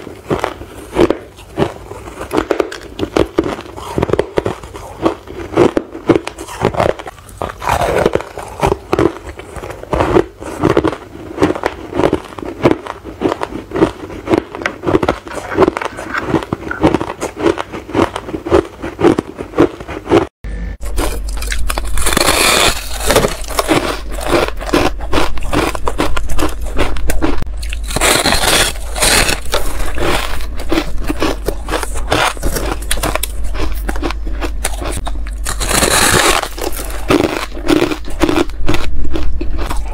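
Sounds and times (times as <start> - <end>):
ice being chewed: 0.0 - 39.9
low hum: 20.4 - 39.9.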